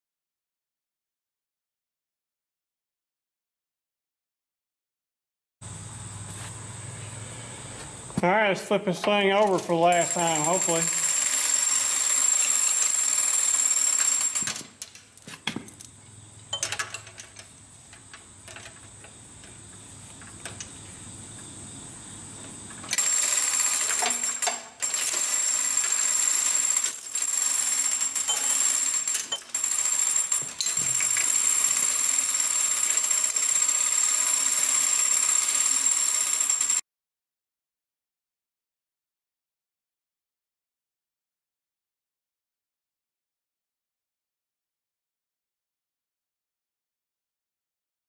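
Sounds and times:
hoist chain rattling: 0:09.1 - 0:16.0.

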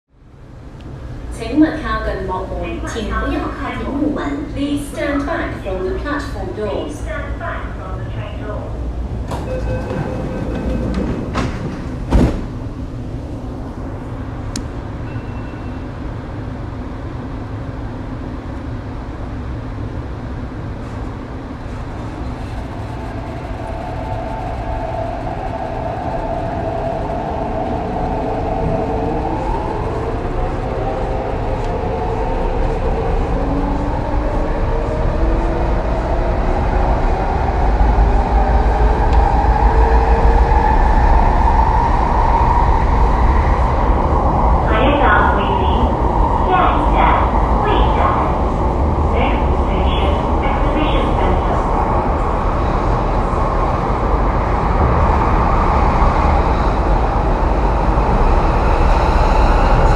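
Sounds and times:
steady train hum: 0:00.1 - 0:59.9
train doors shutting thump: 0:09.2 - 0:12.7.

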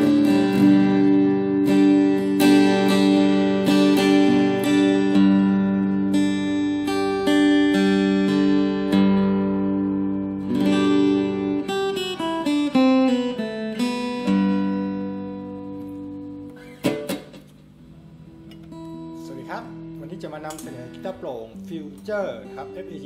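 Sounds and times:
fingerstyle acoustic guitar: 0:00.0 - 0:17.7, 0:18.3 - 0:19.2
guitar handling knocks: 0:20.4 - 0:21.0.

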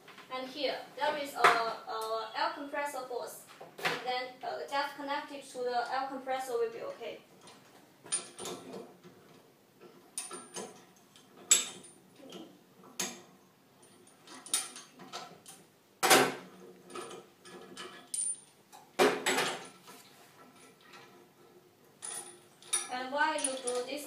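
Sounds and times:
clamp handles clicking and clanking: 0:22.0 - 0:24.0.

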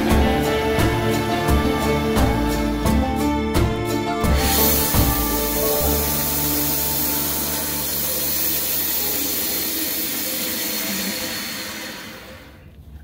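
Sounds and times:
bandsaw hissing: 0:04.2 - 0:12.7.

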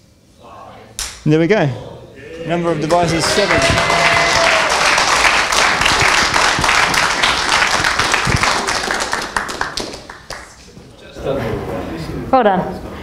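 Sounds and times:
audience applauding: 0:02.6 - 0:10.7.

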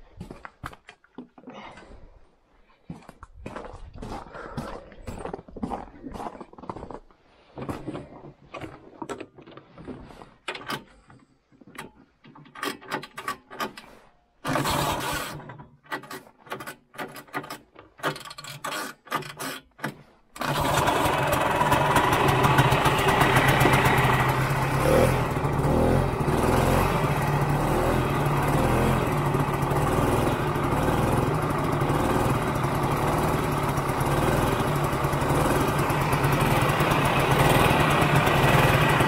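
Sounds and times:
footsteps: 0:00.0 - 0:01.9, 0:02.6 - 0:10.4
snowmobile engine running: 0:20.4 - 0:39.0.

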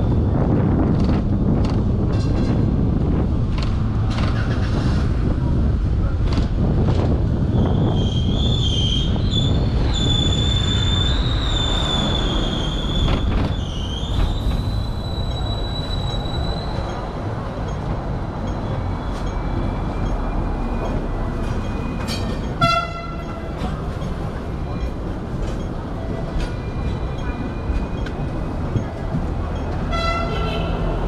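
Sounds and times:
tram running rumble: 0:00.0 - 0:31.0
tram wheels squealing on rails: 0:07.2 - 0:31.0
tram bell ringing: 0:15.1 - 0:30.9.

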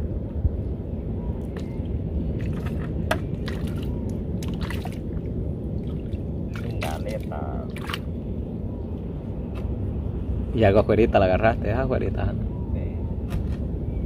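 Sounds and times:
low rumble: 0:00.0 - 0:14.0
small water splashes and drips: 0:02.4 - 0:08.1.

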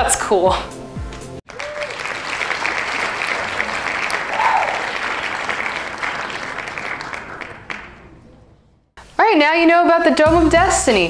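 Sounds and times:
crowd applauding: 0:01.5 - 0:08.8.

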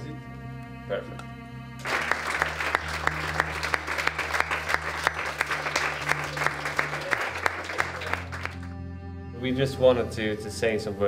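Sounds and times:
audience applauding: 0:01.8 - 0:08.7.

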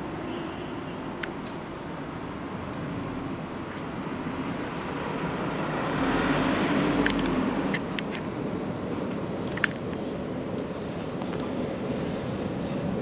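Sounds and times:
street noise: 0:00.0 - 0:13.0
vehicle passing: 0:03.0 - 0:08.5.

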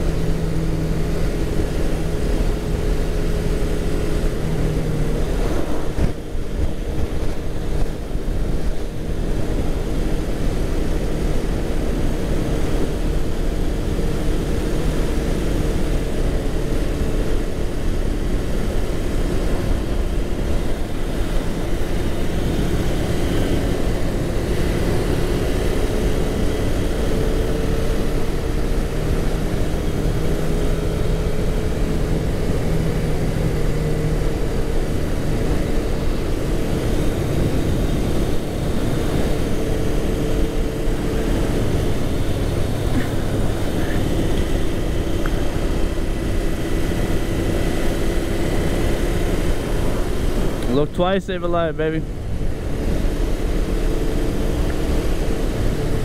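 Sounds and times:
wind on microphone: 0:00.0 - 0:13.4
motorcycle engine cruising: 0:00.0 - 0:56.0.

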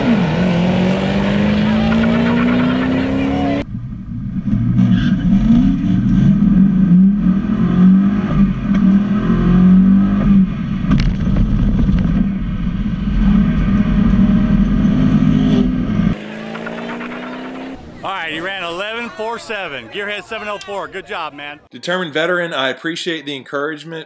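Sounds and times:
car engine accelerating through gears: 0:00.0 - 0:18.0.

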